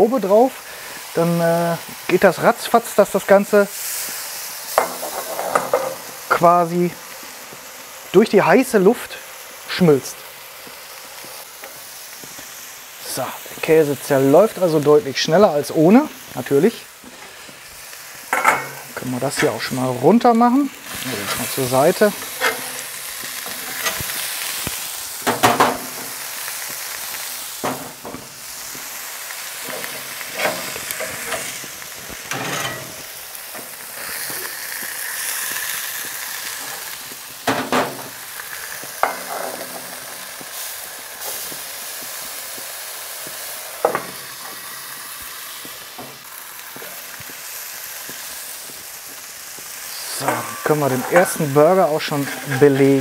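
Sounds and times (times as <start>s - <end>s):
burger patties sizzling on griddle: 0.0s - 53.0s
metal spatula scraping griddle: 4.8s - 6.0s, 20.9s - 24.6s, 29.6s - 34.4s, 39.0s - 40.2s, 50.2s - 53.0s.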